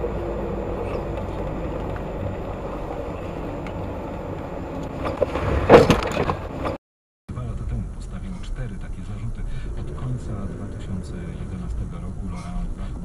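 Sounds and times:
car road rumble: 0:00.0 - 0:13.0
car collision crunch: 0:04.9 - 0:06.8.

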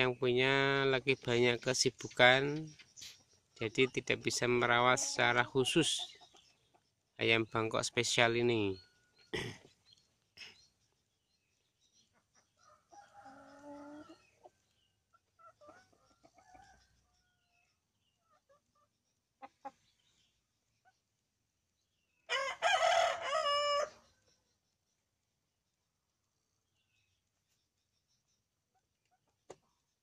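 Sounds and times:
chickens clucking softly: 0:00.0 - 0:11.1, 0:12.0 - 0:21.8, 0:28.4 - 0:30.0
rooster crowing: 0:22.3 - 0:24.0.

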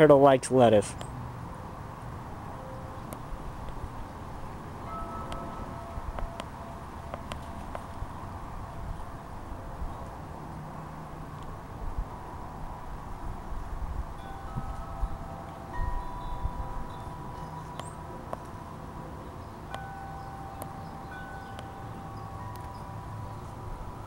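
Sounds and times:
wind chimes ringing: 0:02.4 - 0:09.7, 0:14.1 - 0:24.0.

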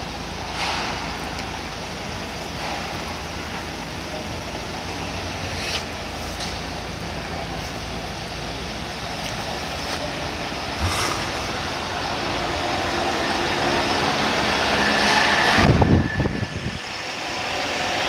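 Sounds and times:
wind on microphone: 0:15.5 - 0:16.9.

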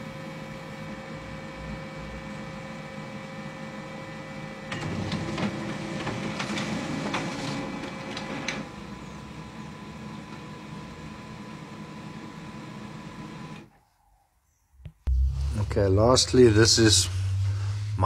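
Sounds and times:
printer humming: 0:00.0 - 0:13.7
printer mechanism clicking and clattering: 0:04.7 - 0:08.7.

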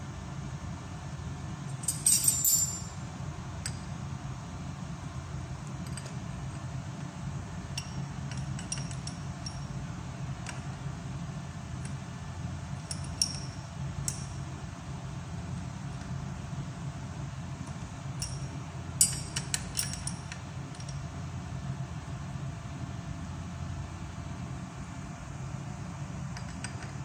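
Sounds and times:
light metallic clinks: 0:01.7 - 0:03.0, 0:07.8 - 0:09.7, 0:12.8 - 0:14.4, 0:18.2 - 0:21.0.

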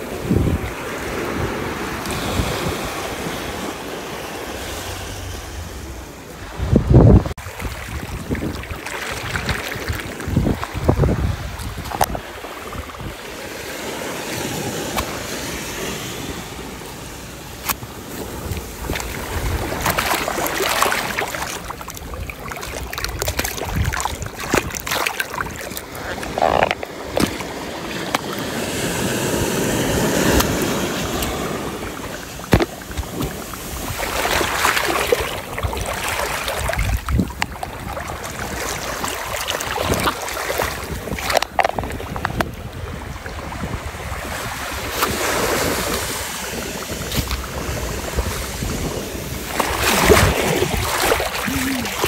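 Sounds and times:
sea water washing over sand: 0:00.0 - 0:52.0
hand splashing through water: 0:18.9 - 0:28.6, 0:49.6 - 0:52.0.

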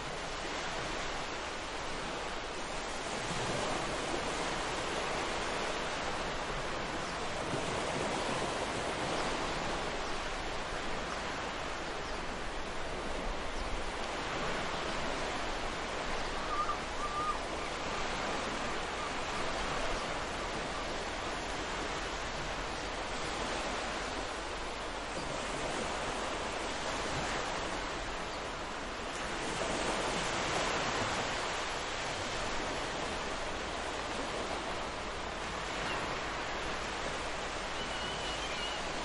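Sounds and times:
waves breaking on beach: 0:00.0 - 0:39.0
faint chirp: 0:37.8 - 0:38.9.

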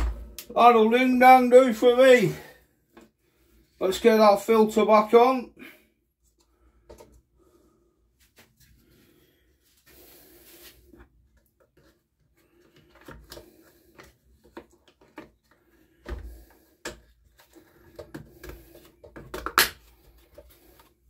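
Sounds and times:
plastic parts clicking and knocking: 0:12.6 - 0:21.0.

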